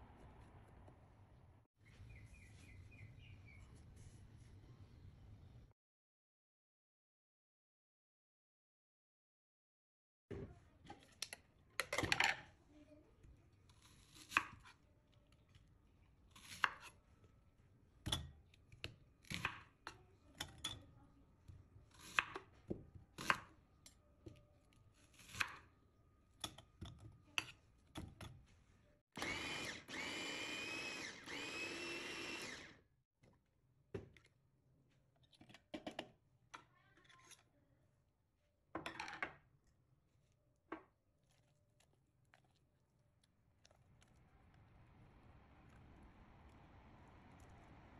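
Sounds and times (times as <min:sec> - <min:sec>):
electric food chopper running: 0:29.2 - 0:32.8.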